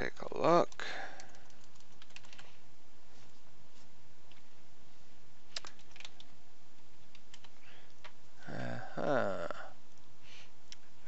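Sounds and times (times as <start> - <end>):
keyboard and mouse clicks: 0.6 - 2.6, 5.5 - 6.4, 7.0 - 8.2.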